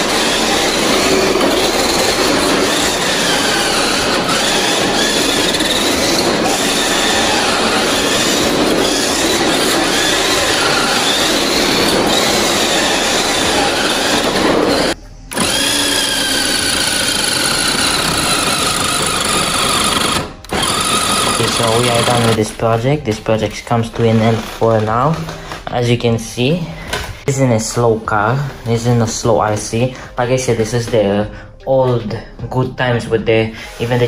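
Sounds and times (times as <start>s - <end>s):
toy car motor whining: 0.0s - 22.4s.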